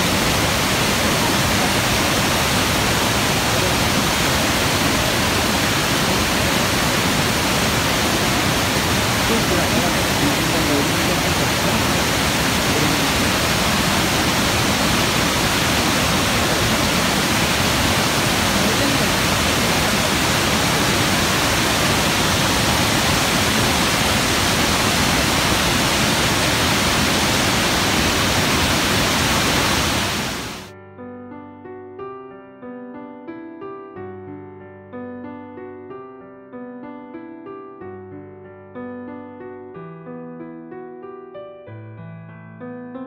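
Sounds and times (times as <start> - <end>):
waterfall rushing over rocks: 0.0 - 30.7.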